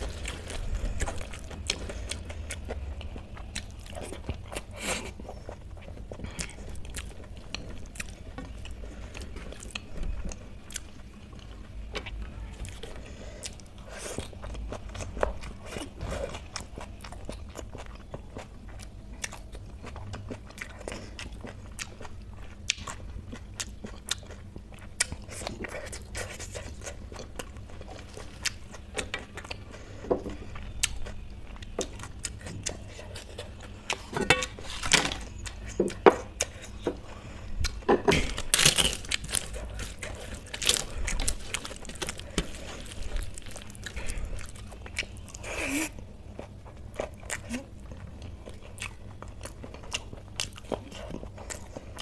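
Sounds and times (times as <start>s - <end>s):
chewing food: 0.0s - 52.0s
crunchy bites of fried snacks: 37.7s - 47.6s.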